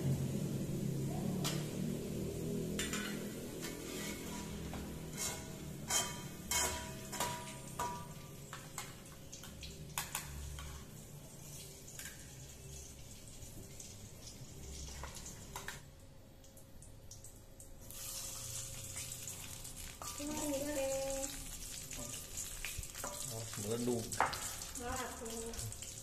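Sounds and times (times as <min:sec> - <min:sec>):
spatulas scraping a wok: 0:02.7 - 0:08.1.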